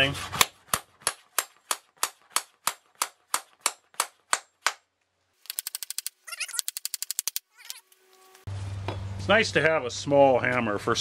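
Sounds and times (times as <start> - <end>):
hammer nailing wood: 0.4 - 4.8.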